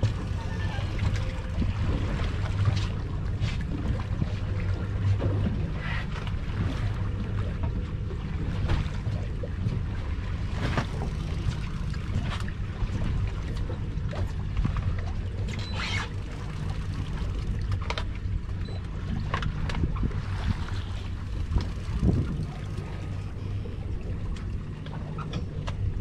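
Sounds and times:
boat engine humming: 0:00.0 - 0:26.0
water splashing: 0:00.0 - 0:26.0
wind on microphone: 0:19.7 - 0:23.4.

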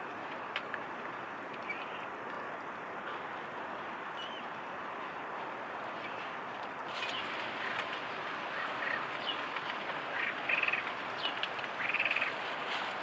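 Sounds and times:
steady background hiss: 0:00.0 - 0:13.0
rapidly pulsing animal calls: 0:07.2 - 0:12.4.

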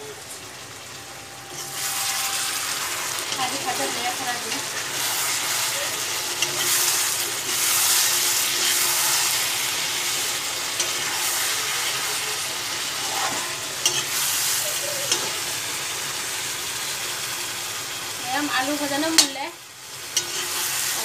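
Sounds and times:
curry sizzling in a pan: 0:00.0 - 0:21.0
metal spatula scraping a pan: 0:01.5 - 0:15.5, 0:20.1 - 0:21.0
spatula clinking on pan: 0:06.3 - 0:06.8, 0:13.8 - 0:14.2, 0:20.2 - 0:20.6.

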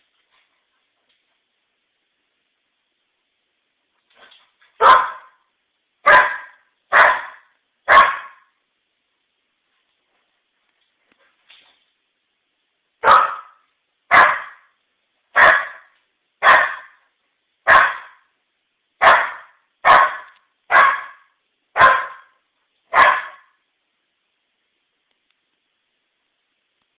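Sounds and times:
puppy barking: 0:04.8 - 0:05.4, 0:06.0 - 0:08.5, 0:13.0 - 0:14.7, 0:15.4 - 0:17.0, 0:17.7 - 0:18.3, 0:19.0 - 0:23.6.

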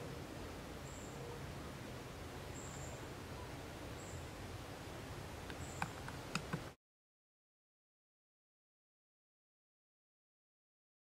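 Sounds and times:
low rumble and hiss: 0:00.0 - 0:06.8.

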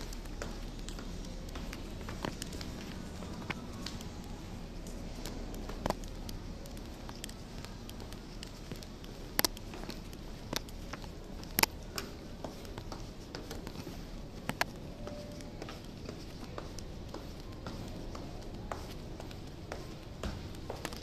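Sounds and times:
footsteps on tiled floor: 0:00.0 - 0:21.0
steady low hum: 0:00.0 - 0:21.0
footsteps on carpeted stairs: 0:09.1 - 0:21.0.

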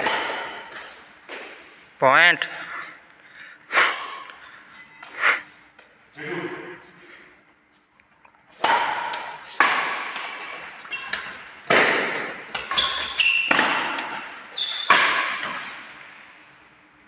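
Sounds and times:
racket hitting shuttlecock: 0:00.0 - 0:01.7, 0:08.5 - 0:16.2
short high squeaks: 0:14.6 - 0:14.9.

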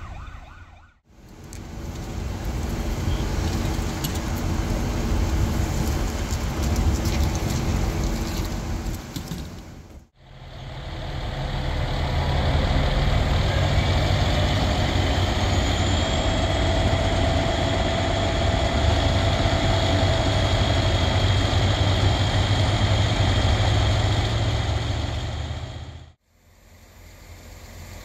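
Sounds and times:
diesel engine idling: 0:10.2 - 0:28.0.

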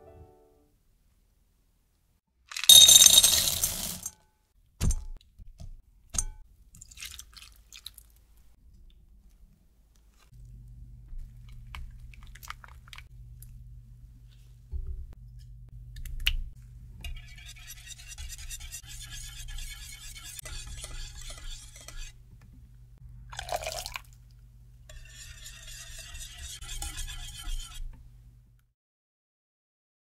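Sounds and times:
whisk scraping glass bowl: 0:17.0 - 0:22.2, 0:24.9 - 0:28.0.

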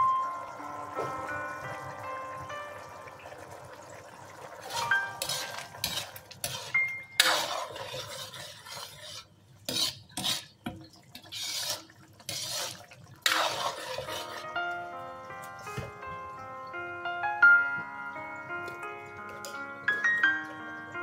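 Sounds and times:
metal ladle stirring thick sauce: 0:04.6 - 0:14.7.

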